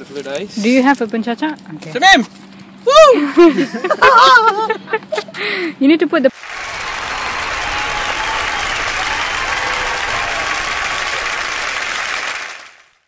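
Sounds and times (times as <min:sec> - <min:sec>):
crowd applause: 0:06.4 - 0:13.0.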